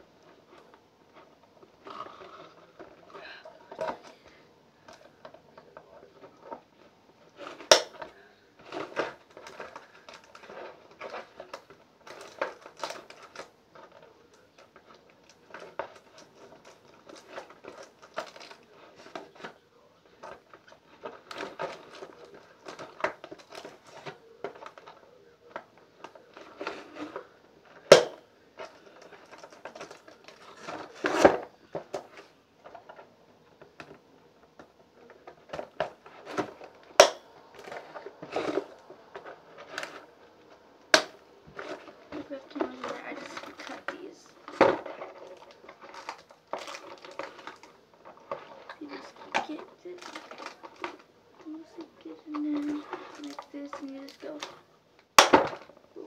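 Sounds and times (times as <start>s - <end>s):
cardboard and plastic packaging rustling: 0.0s - 56.0s.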